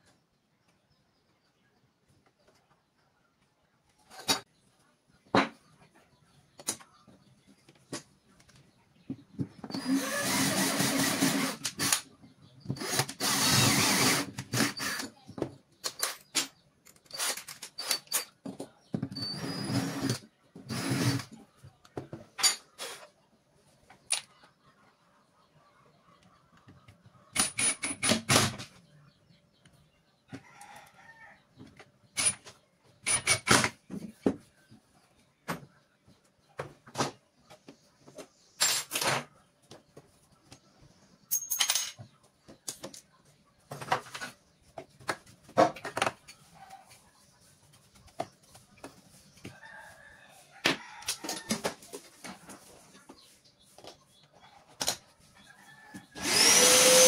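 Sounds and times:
cordless drill running: 9.7 - 12.0, 12.8 - 15.0, 56.2 - 57.0
metal parts and tools clicking: 15.8 - 18.4, 41.3 - 42.0.

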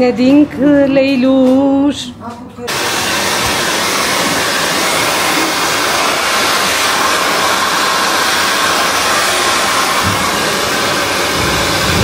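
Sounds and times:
hair dryer blowing: 2.7 - 12.0.

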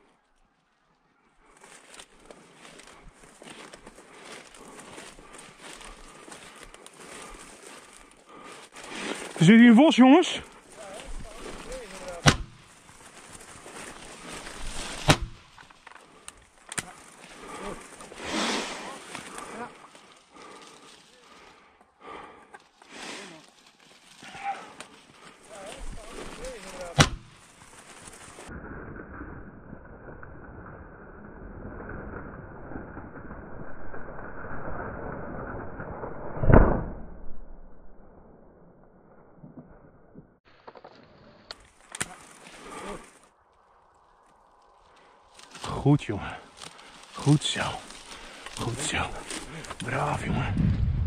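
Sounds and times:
rustling: 0.0 - 28.6, 40.5 - 51.0
shotgun shot: 12.0 - 12.6, 15.0 - 15.4, 27.0 - 27.3.

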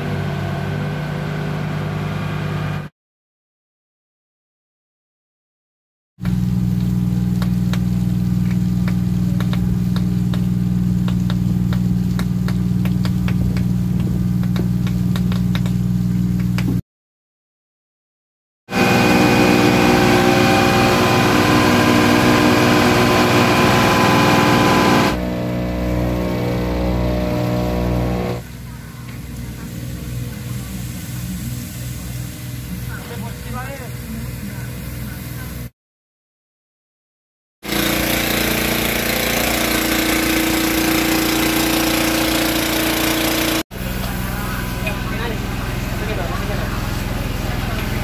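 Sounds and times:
pump mechanical drone: 6.2 - 16.8, 18.7 - 34.7, 37.6 - 48.0
quieter machine sound: 18.7 - 28.7.

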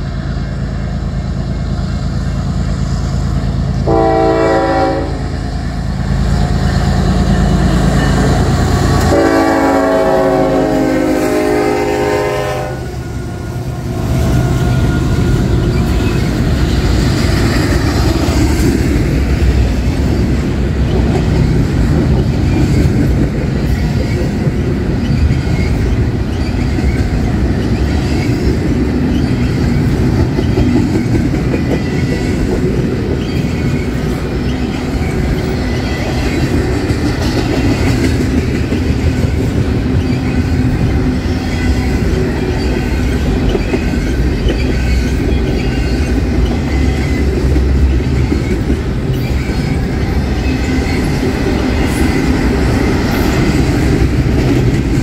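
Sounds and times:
diesel locomotives working hard: 0.0 - 55.0
train wheels on rails: 0.0 - 55.0
locomotive horn blasts: 3.8 - 5.3, 9.0 - 13.0.

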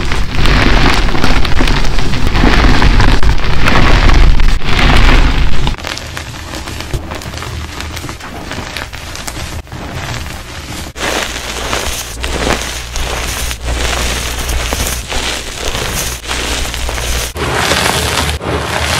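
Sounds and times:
hands crunching chalk powder: 0.0 - 18.9.

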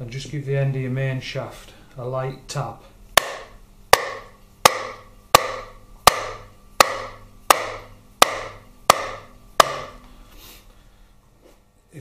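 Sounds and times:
hammer tapping metal shaft: 3.2 - 10.0.

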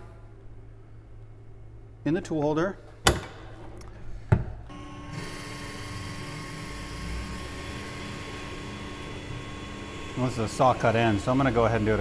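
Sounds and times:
lathe spindle running: 4.7 - 12.0.

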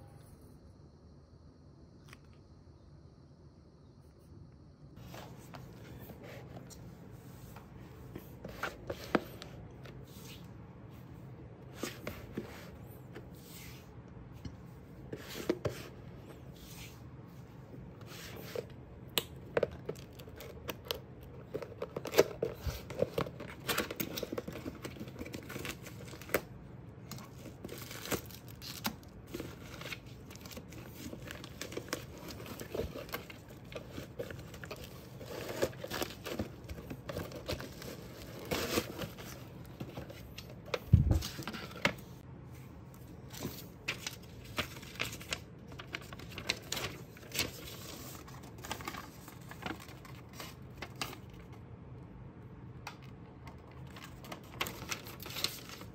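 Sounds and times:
paper leaflet crinkling: 27.1 - 42.0, 43.3 - 51.4, 53.8 - 55.9
paper rustling: 27.1 - 42.1, 43.2 - 51.3, 53.8 - 55.9.

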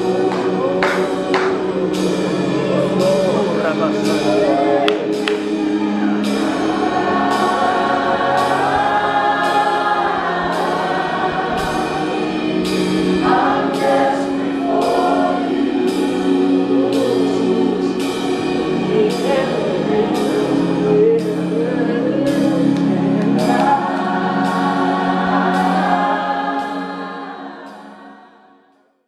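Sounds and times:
band accompaniment with steady beat: 0.0 - 28.0
group voices singing: 0.0 - 28.7
lead singer: 0.0 - 28.7.

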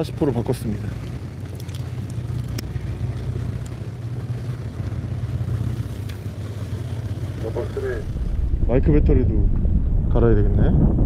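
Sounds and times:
boat engine humming: 0.0 - 10.0
faint clicks: 0.9 - 4.1, 5.9 - 6.3.

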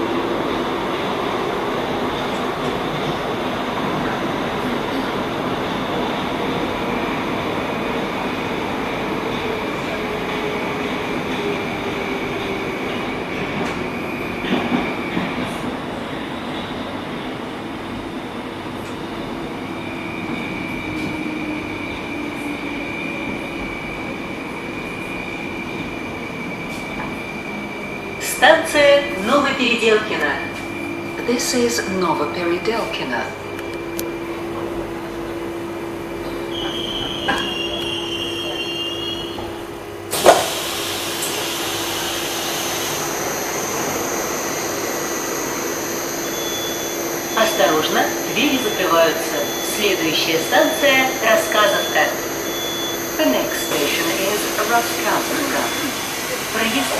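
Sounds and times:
train doors opening with rush: 0.0 - 56.9
train high whine: 0.0 - 56.9
high whine: 42.0 - 56.9.

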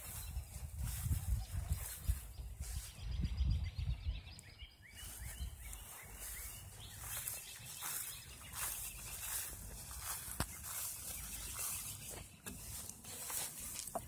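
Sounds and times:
wind rumble on microphone: 0.0 - 7.2
small birds chirping: 0.0 - 14.0.

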